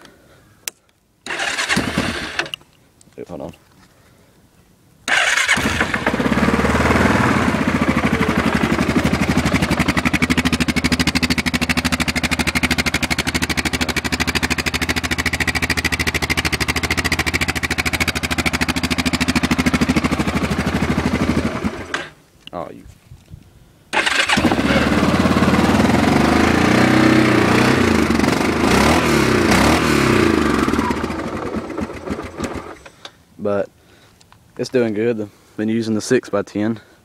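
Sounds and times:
atv engine starting and idling: 0:01.3 - 0:02.6, 0:05.1 - 0:22.2, 0:23.9 - 0:33.0.

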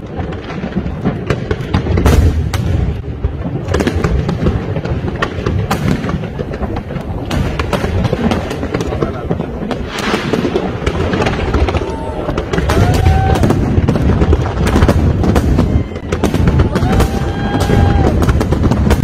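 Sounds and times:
fireworks booming and cracking: 0:00.0 - 0:19.0.

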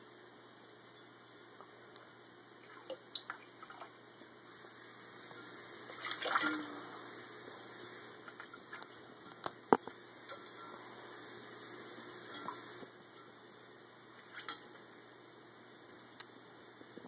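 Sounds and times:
tap water running into bowl: 0:05.3 - 0:06.8
bird splashing in water: 0:05.9 - 0:06.7.

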